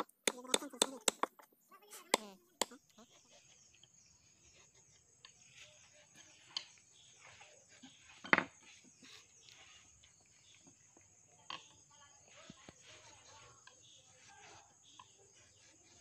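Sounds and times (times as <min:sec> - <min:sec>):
chisel tapping and scraping wood: 0:00.0 - 0:01.5.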